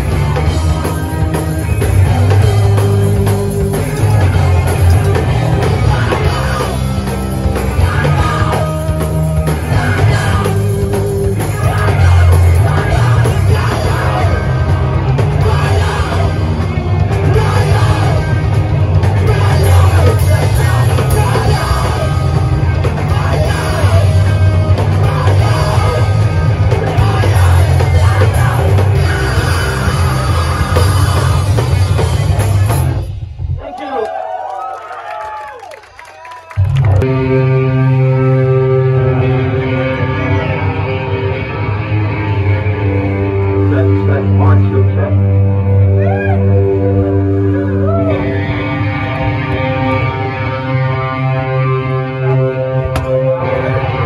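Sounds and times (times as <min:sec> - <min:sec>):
live rock band playing: 0:00.0 - 0:33.6, 0:36.5 - 0:54.0.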